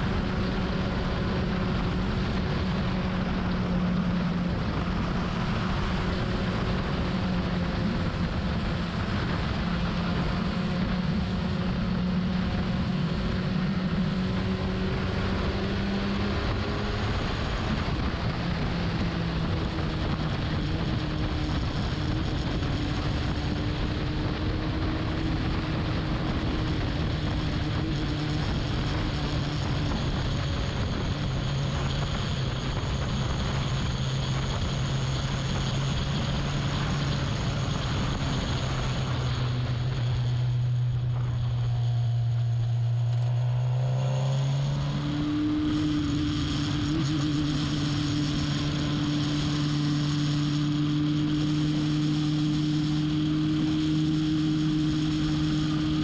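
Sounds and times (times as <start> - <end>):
car engine revving high: 35.6 - 56.0.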